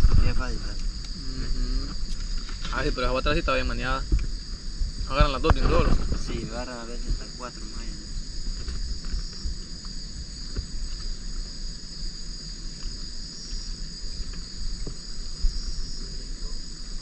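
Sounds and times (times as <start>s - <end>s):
insects shrilling: 0.0s - 17.0s.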